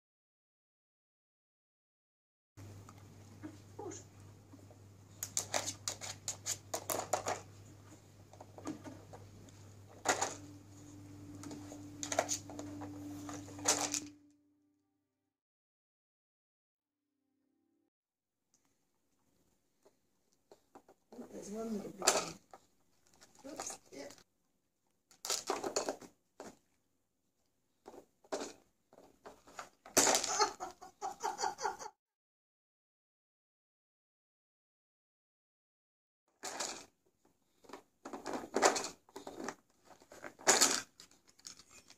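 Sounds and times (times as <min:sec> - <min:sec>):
faint low hum: 0:02.6 - 0:14.9
dog pawing plastic puzzle toy: 0:05.2 - 0:07.7, 0:37.6 - 0:41.9.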